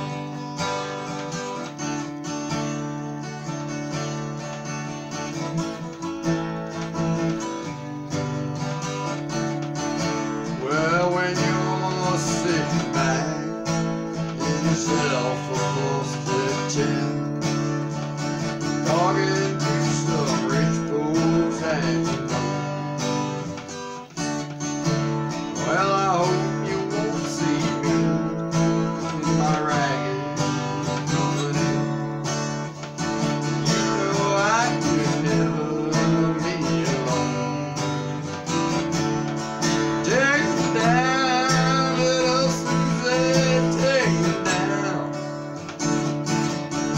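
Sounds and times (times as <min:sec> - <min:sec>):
acoustic guitar strumming: 0:00.0 - 0:46.9
man singing: 0:10.2 - 0:23.6, 0:25.0 - 0:46.1.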